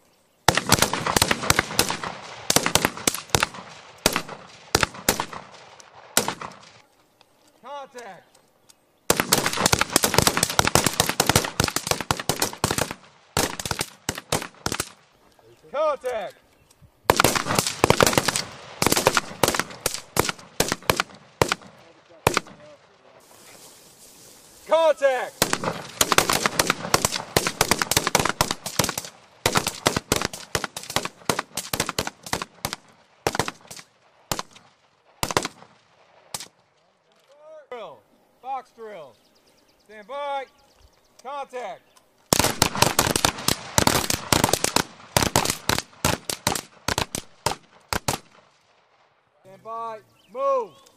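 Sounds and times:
rapid rifle fire: 0:00.5 - 0:06.8, 0:09.1 - 0:15.0, 0:17.1 - 0:22.7, 0:25.4 - 0:36.5, 0:42.3 - 0:48.5.

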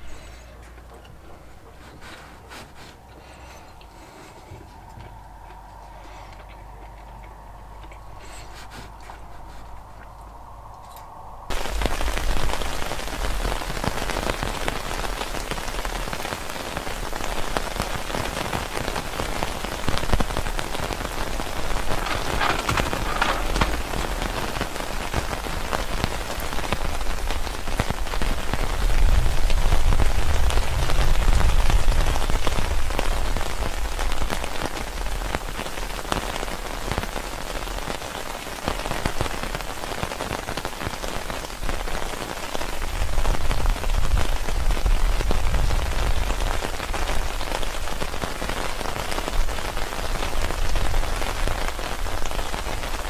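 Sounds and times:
heavy rain falling: 0:00.0 - 0:02.2, 0:11.5 - 0:53.0
low rumble: 0:03.2 - 0:12.8.

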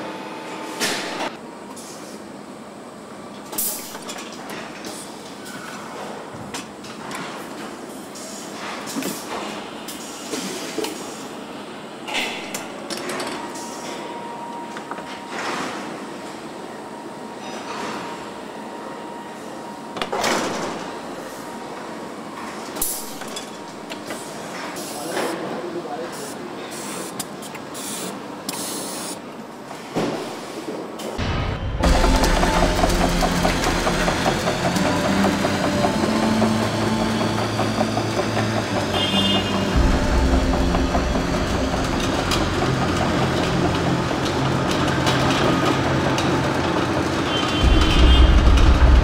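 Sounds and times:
machinery rush: 0:31.2 - 0:49.0
steady mechanical din: 0:31.2 - 0:49.0.

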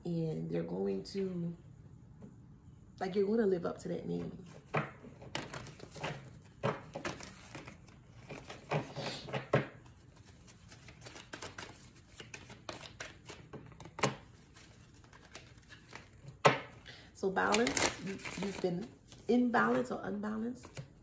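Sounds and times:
cards being shuffled: 0:04.7 - 0:16.7, 0:17.4 - 0:19.9.

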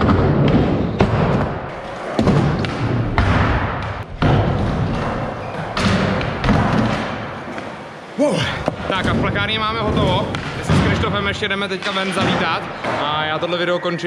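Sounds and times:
skateboards rolling: 0:00.1 - 0:08.2.

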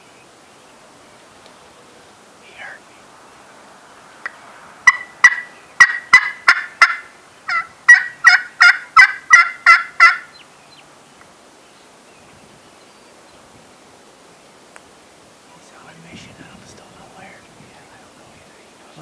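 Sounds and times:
turkey yelping: 0:04.8 - 0:10.4.

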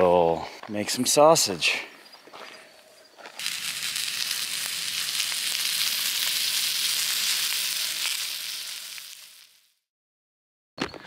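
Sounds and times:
sausage sizzling and crackling: 0:03.1 - 0:09.9.

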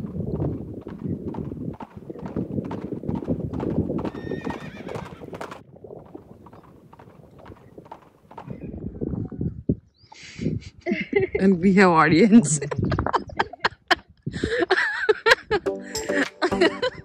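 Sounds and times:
horse hooves clip-clopping: 0:00.0 - 0:08.6
horse whinnying: 0:04.0 - 0:05.6.

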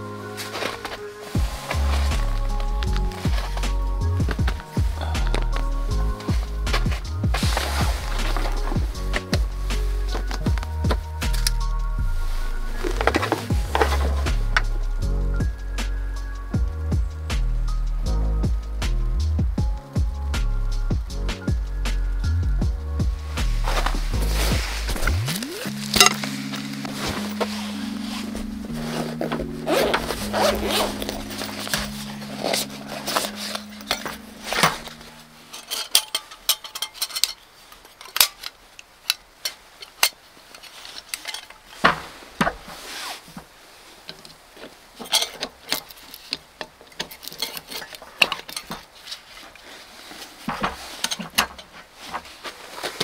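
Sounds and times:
camping cookware clinking: 0:00.0 - 0:11.8, 0:12.7 - 0:14.5, 0:23.7 - 0:42.8, 0:44.0 - 0:53.0.

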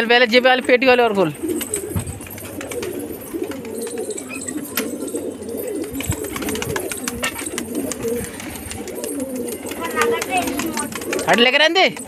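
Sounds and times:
pigeons cooing: 0:00.0 - 0:12.0.

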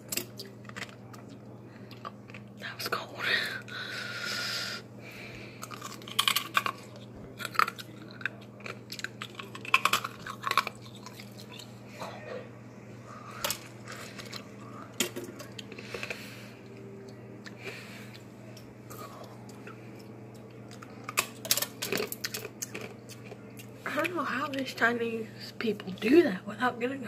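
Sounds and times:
wet chewing: 0:05.6 - 0:11.8, 0:15.4 - 0:24.6.

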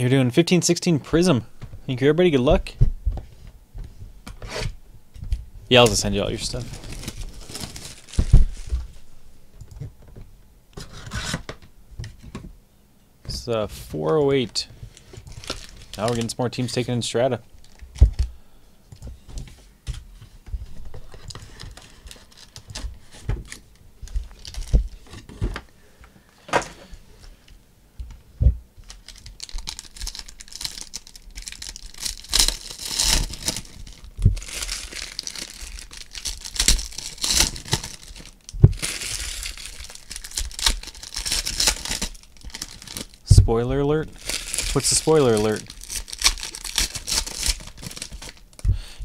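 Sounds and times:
foil wrappers tearing and crinkling: 0:05.7 - 0:08.8, 0:15.0 - 0:16.4, 0:20.9 - 0:23.6, 0:24.2 - 0:25.2, 0:28.8 - 0:43.3, 0:44.1 - 0:48.6.

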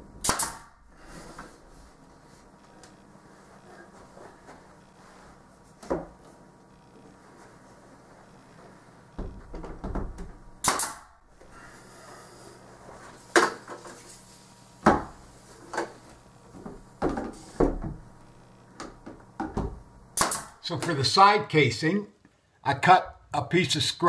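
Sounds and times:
pneumatic nailer firing: 0:00.2 - 0:00.8, 0:10.6 - 0:11.2, 0:20.2 - 0:20.6.

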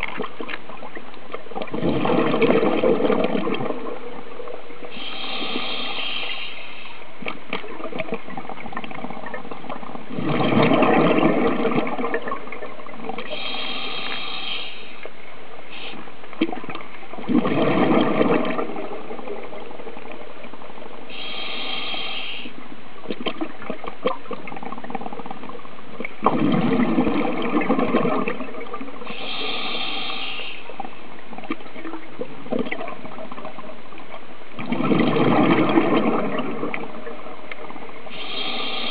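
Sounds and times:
exhaled bubbles gushing: 0:00.0 - 0:05.8, 0:07.2 - 0:13.5, 0:16.3 - 0:21.2, 0:22.5 - 0:29.6, 0:30.7 - 0:38.9
regulator hissing inhale: 0:04.9 - 0:07.1, 0:13.3 - 0:15.1, 0:15.7 - 0:16.0, 0:21.1 - 0:22.6, 0:29.1 - 0:30.8, 0:38.1 - 0:38.9.

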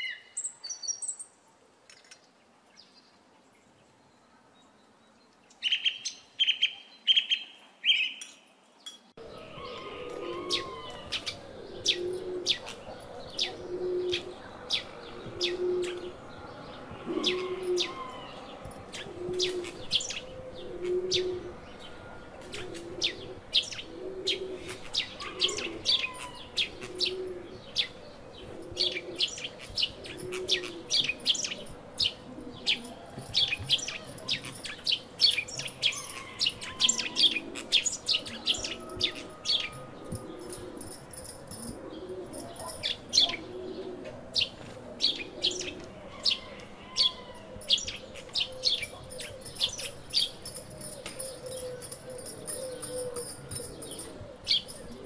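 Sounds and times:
small birds chirping: 0:00.0 - 0:55.0
low cooing note: 0:16.8 - 0:24.7.

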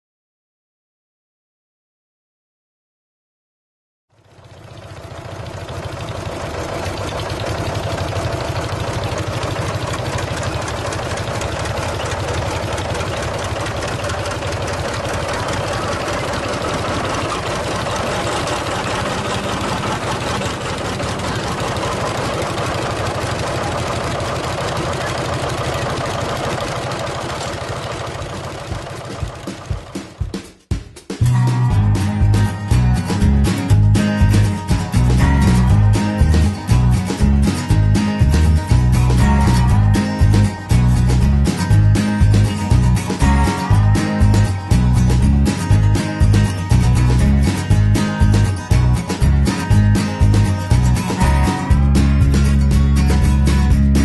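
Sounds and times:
diesel tractor engine knocking: 0:04.2 - 0:30.4, 0:32.3 - 0:54.0.

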